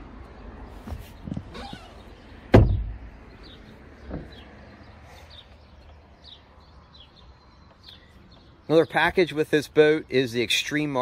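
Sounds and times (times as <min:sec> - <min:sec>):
heavy thump: 0:02.5 - 0:03.0, 0:04.1 - 0:04.4
bird chirping: 0:03.1 - 0:11.0.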